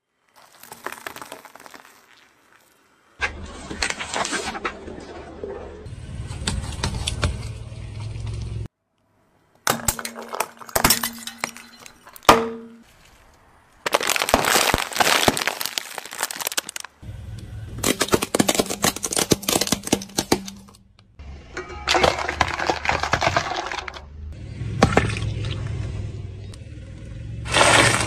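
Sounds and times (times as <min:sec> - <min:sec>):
low rumble of rolling tyre: 0:03.2 - 0:08.7, 0:16.9 - 0:18.3, 0:20.8 - 0:28.0
plastic cracking and crunching: 0:13.8 - 0:17.0, 0:17.8 - 0:20.8, 0:21.9 - 0:24.0.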